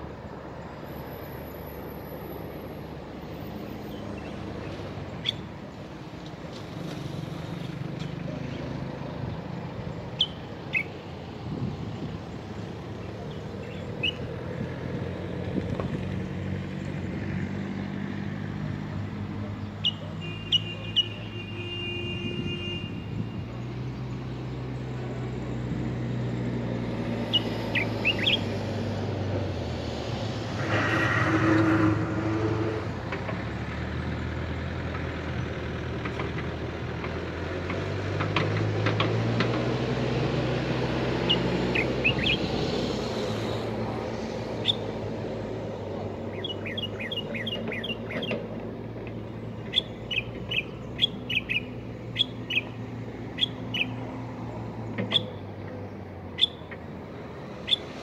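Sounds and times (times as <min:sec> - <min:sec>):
road traffic hum: 0:00.0 - 0:58.0
vehicle passing: 0:23.6 - 0:36.0, 0:36.6 - 0:58.0
short high bird chirps: 0:49.7 - 0:52.8, 0:56.4 - 0:56.7, 0:57.7 - 0:57.9.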